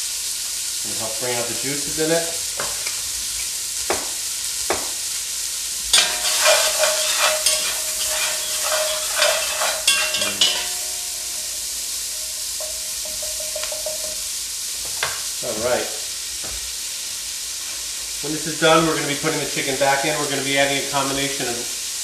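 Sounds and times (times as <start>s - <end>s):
food sizzling in fat: 0.0s - 22.0s
spatula scraping pot bottom: 6.0s - 11.6s.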